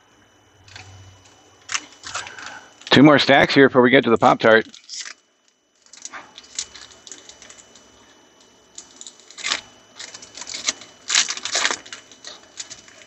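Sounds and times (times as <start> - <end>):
trading cards and foil wrapper handled: 1.7 - 3.0, 4.5 - 5.2, 5.8 - 8.0, 8.7 - 13.0.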